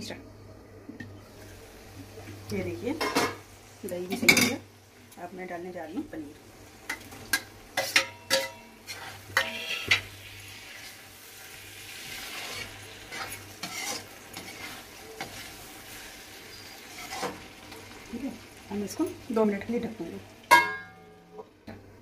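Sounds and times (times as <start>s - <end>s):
steady sizzle: 0.0s - 22.0s
metal spatula scraping pan: 6.9s - 11.0s, 12.0s - 17.4s.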